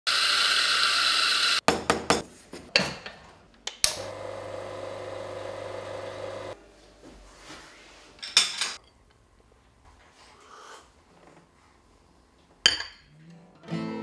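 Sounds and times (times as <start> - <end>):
coffee grinder running: 0.1 - 1.6, 4.0 - 6.6
espresso machine pump humming: 4.0 - 6.6.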